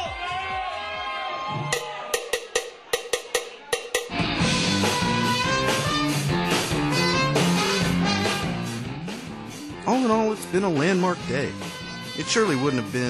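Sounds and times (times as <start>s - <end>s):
rock band playing: 1.6s - 13.0s.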